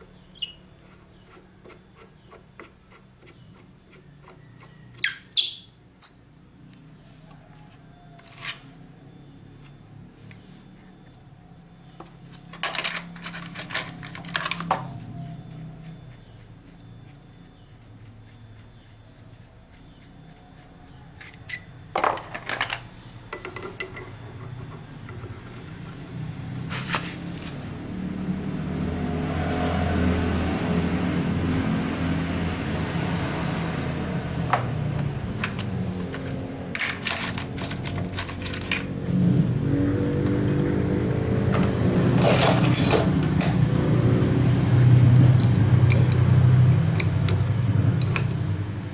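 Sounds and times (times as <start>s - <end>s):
metal hand tools clinking: 21.2s - 27.0s, 42.0s - 43.6s.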